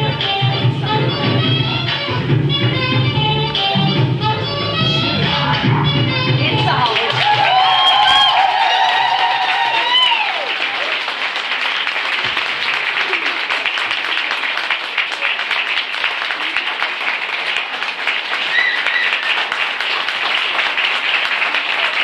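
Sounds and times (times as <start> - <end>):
audience applauding: 6.6 - 22.0.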